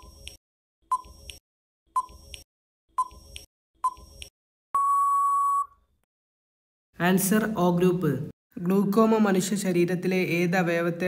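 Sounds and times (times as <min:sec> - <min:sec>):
ticking beeps: 0:03.0 - 0:05.8
long steady beep: 0:04.8 - 0:05.8.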